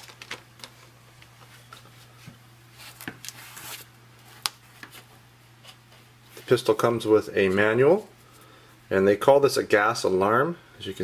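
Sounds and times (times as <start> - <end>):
faint steady hum: 0.0 - 11.0
paper rustling: 2.7 - 6.5.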